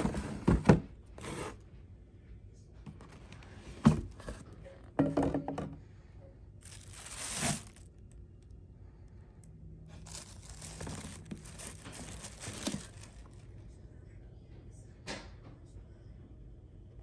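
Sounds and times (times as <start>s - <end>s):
wrapping paper crinkling: 6.6s - 8.1s, 9.9s - 13.5s.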